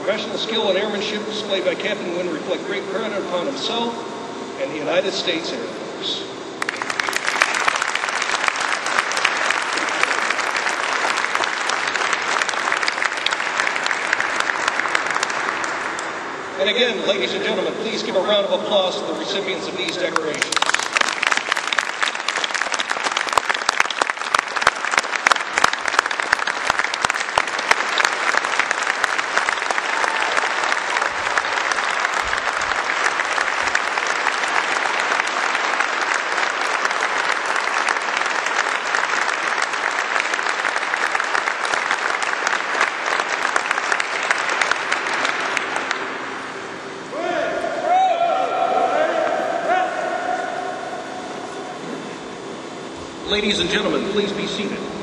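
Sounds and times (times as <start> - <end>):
large audience applauding: 6.6 - 16.6, 19.8 - 47.1.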